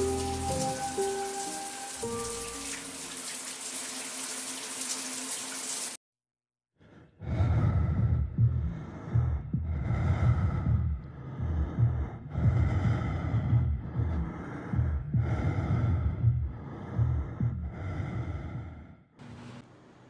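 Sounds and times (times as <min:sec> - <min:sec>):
shower water spraying: 0:00.0 - 0:06.0.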